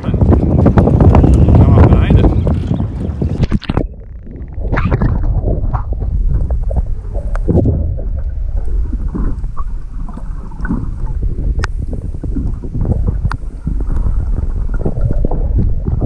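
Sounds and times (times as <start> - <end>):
water rushing underwater: 0.0 - 16.0.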